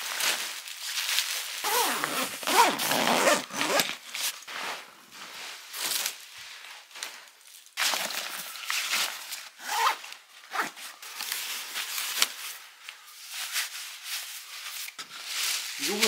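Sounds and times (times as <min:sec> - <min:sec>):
zipper: 0:01.6 - 0:04.0, 0:09.6 - 0:10.8.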